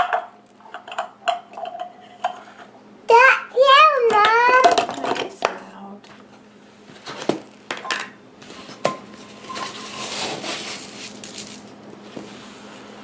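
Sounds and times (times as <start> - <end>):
kitchen utensils clinking: 0.0 - 2.5, 7.7 - 11.8.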